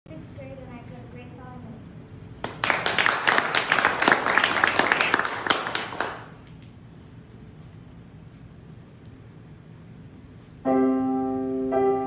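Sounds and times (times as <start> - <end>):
small audience clapping: 2.4 - 6.6.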